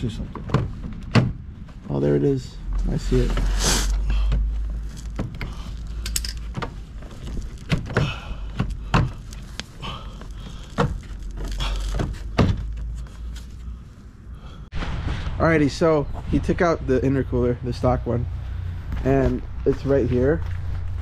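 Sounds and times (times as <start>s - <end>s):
steady low rumble: 0.0s - 21.0s
plastic car parts knocking and rattling: 4.1s - 13.0s.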